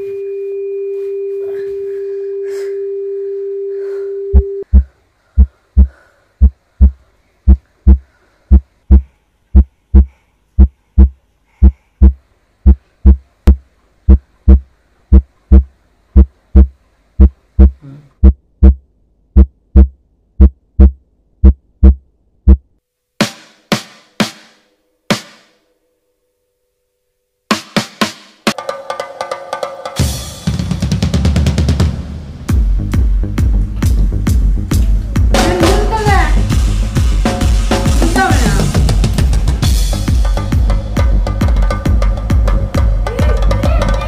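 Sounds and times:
steady electronic tone: 0.0s - 4.6s
heartbeat thumps: 4.3s - 22.7s, 32.5s - 43.8s.

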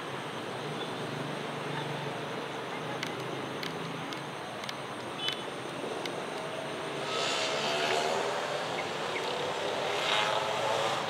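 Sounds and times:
engine passing by: 6.9s - 11.0s.

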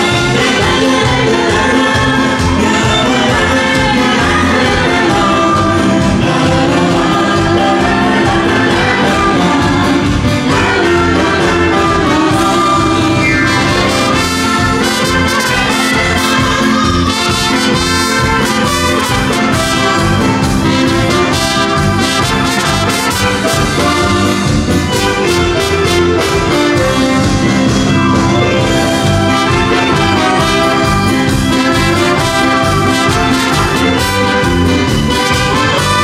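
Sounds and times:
woman singing: 0.0s - 20.4s
live dance band playing: 0.0s - 36.0s.

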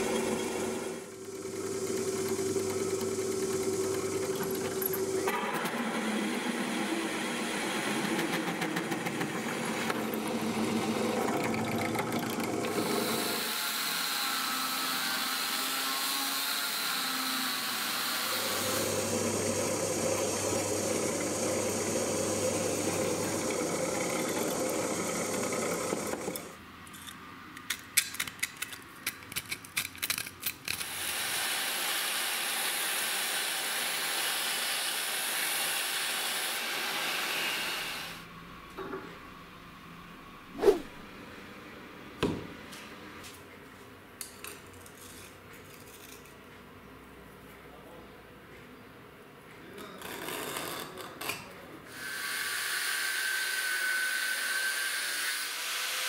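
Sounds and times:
power drill boring through steel: 12.7s - 26.5s, 30.8s - 38.2s, 51.9s - 56.0s.

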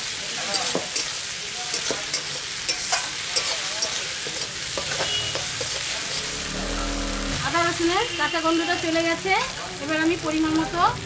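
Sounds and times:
food sizzling in hot oil: 0.0s - 11.0s
spatula scraping metal pan: 1.8s - 7.4s.

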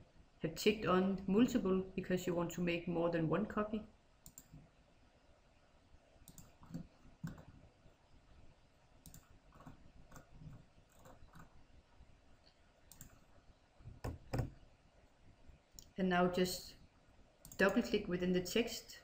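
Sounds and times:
computer mouse clicking: 4.2s - 4.6s, 6.2s - 7.5s, 9.0s - 11.6s, 12.9s - 13.2s.

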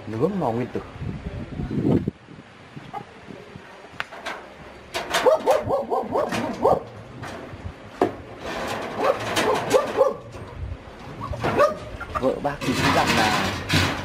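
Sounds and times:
wire mesh rattling: 4.1s - 14.0s
chickens squawking: 9.0s - 12.6s.

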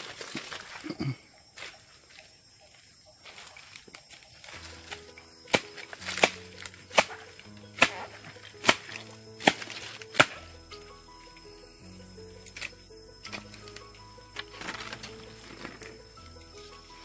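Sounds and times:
background music: 3.2s - 17.0s
blade chopping wood: 4.6s - 10.5s.

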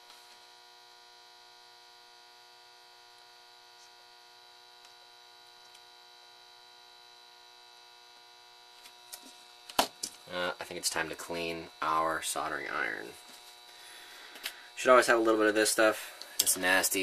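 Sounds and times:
faint electrical hum: 0.0s - 17.0s
thin high whine: 0.0s - 17.0s.

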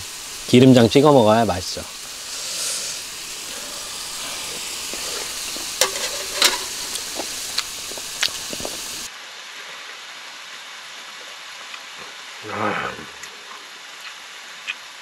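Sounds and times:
steak sizzling in a pan: 0.0s - 9.1s.

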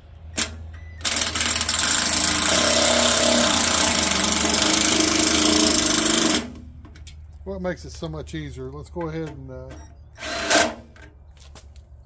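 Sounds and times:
power driver rattling buzz: 0.3s - 6.8s, 10.1s - 11.1s.

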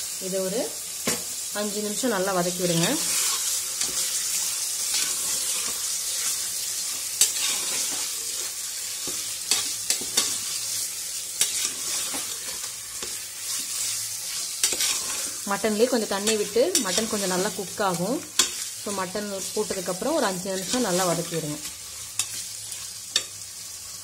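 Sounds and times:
meat sizzling in hot oil: 0.0s - 24.0s
spatula scraping a pot: 2.7s - 10.7s, 11.4s - 15.4s, 16.2s - 17.6s.

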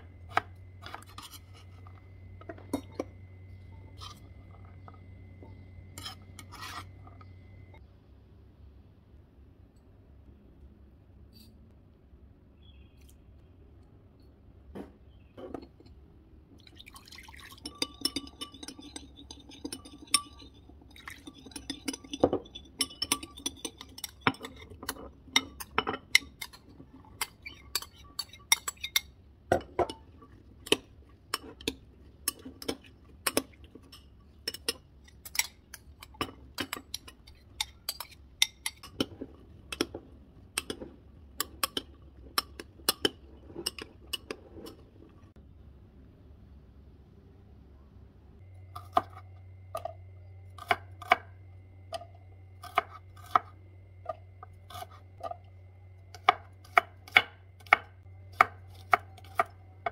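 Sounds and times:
metal spoon clinking glass bowl: 17.3s - 40.0s, 40.6s - 44.8s.

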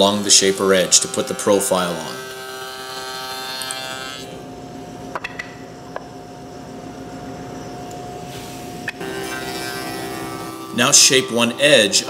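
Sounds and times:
shaper cutting wood: 0.0s - 4.4s, 9.0s - 12.0s
shaper humming: 0.0s - 4.9s, 7.5s - 12.0s.

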